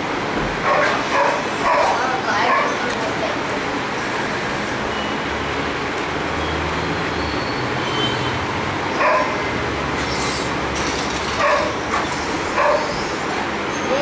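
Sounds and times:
dog yelping: 0:08.9 - 0:09.5, 0:11.4 - 0:13.3.

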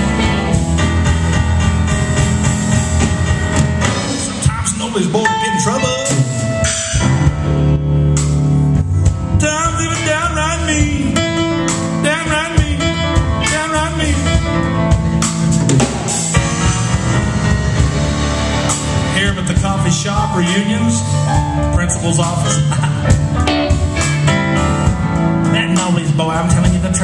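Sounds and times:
drum kit playing: 0:00.0 - 0:27.0
low bass: 0:00.0 - 0:27.0
electric guitar: 0:22.6 - 0:25.5.

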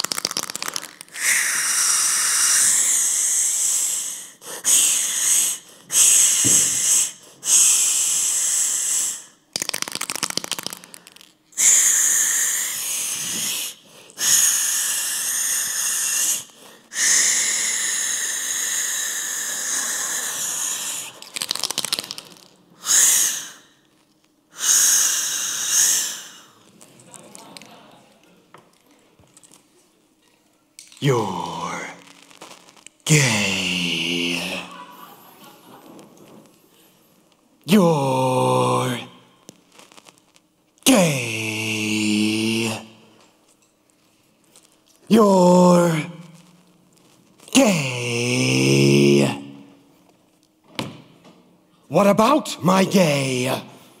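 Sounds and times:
spray paint can hissing: 0:00.0 - 0:03.4, 0:04.8 - 0:13.7, 0:17.3 - 0:23.4.

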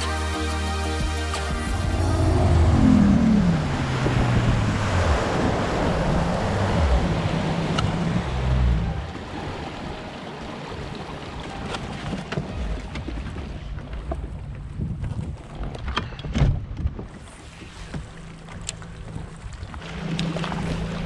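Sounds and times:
outboard motor running: 0:00.8 - 0:09.9, 0:17.4 - 0:21.0
water rushing past hull: 0:00.8 - 0:14.9, 0:17.0 - 0:21.0
wind on microphone: 0:01.6 - 0:09.1, 0:14.2 - 0:18.2.

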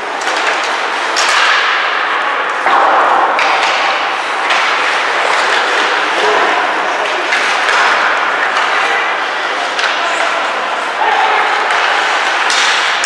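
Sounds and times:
hockey sticks and puck clacking: 0:00.0 - 0:13.0
skates scraping on ice: 0:11.4 - 0:13.0.

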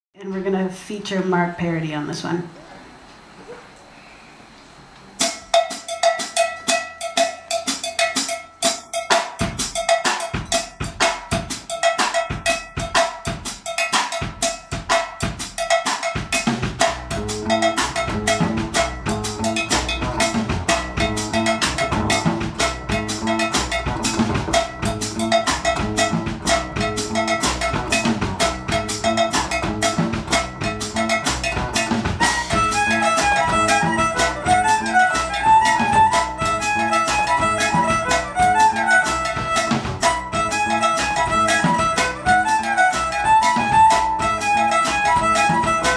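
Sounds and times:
drum kit groove: 0:05.0 - 0:45.9
low bass line: 0:17.0 - 0:45.9
fiddle: 0:32.2 - 0:45.9.

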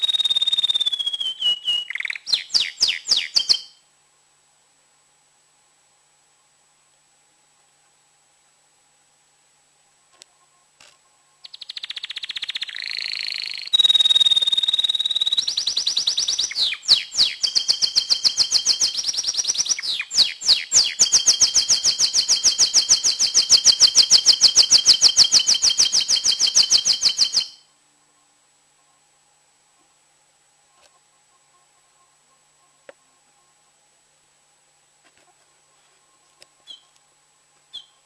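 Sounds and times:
canary singing: 0:00.0 - 0:03.8, 0:11.4 - 0:27.7, 0:36.6 - 0:37.0, 0:37.7 - 0:38.0.

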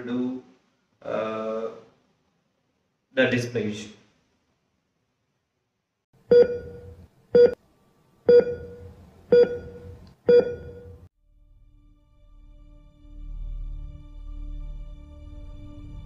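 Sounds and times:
electronic beeps: 0:06.3 - 0:07.6, 0:08.3 - 0:11.0.

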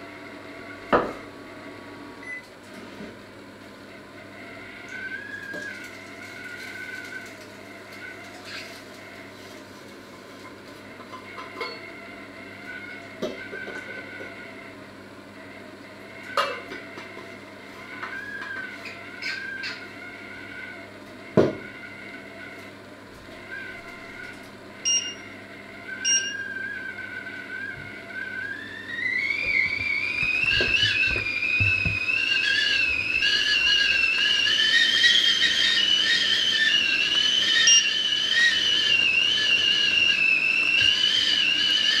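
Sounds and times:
kettle whistling: 0:04.4 - 0:09.5, 0:11.0 - 0:14.7, 0:16.1 - 0:22.5, 0:23.2 - 0:42.0
short electronic beeps: 0:24.8 - 0:25.3, 0:26.0 - 0:26.4.

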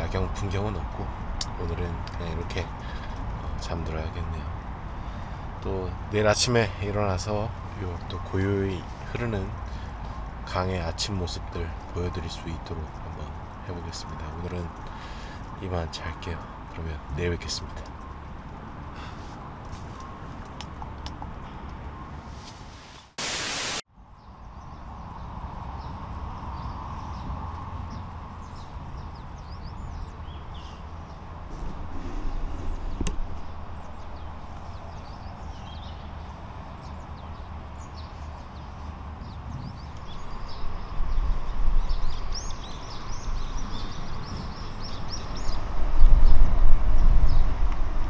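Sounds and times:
small birds chirping: 0:00.0 - 0:22.2, 0:24.1 - 0:47.6
distant traffic rumble: 0:00.0 - 0:22.8, 0:24.0 - 0:48.0
static hiss burst: 0:22.8 - 0:23.8.

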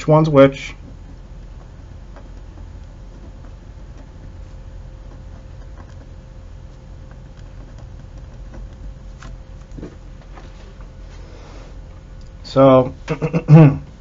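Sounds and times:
steady low hum: 0:00.0 - 0:14.0
pen scratching on paper: 0:00.8 - 0:09.4.

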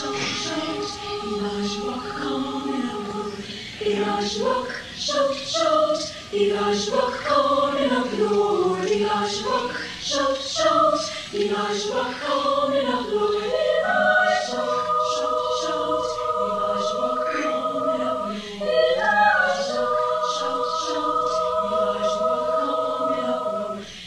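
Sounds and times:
choir singing: 0:00.0 - 0:24.0.

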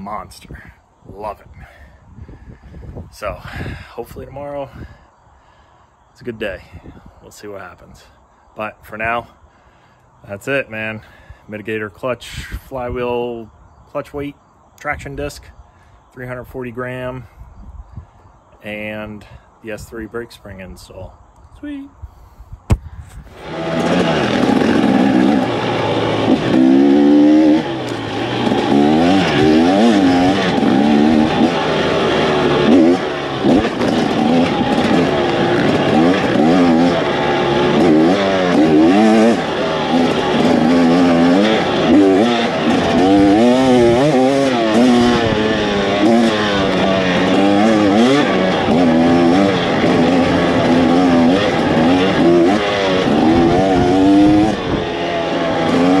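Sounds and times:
dirt bike engine revving: 0:23.2 - 0:56.0.

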